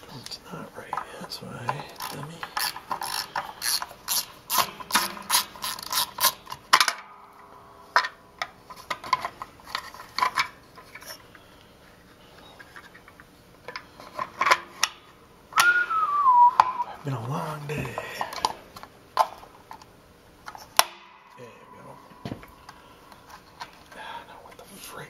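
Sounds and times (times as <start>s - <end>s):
ratcheting screwdriver clicking: 2.0s - 6.5s.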